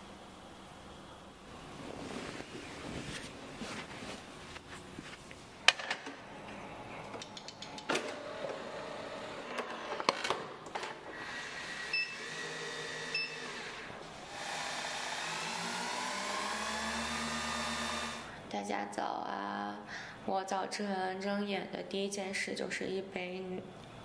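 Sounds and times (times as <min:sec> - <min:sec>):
faint steady hum: 0:00.0 - 0:09.7, 0:17.2 - 0:24.0.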